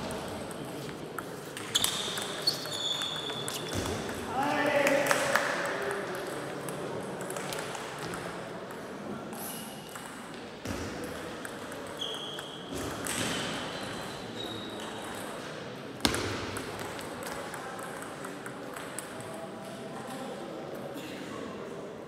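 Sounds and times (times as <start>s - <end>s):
ping pong ball clicking: 16.5s - 19.3s.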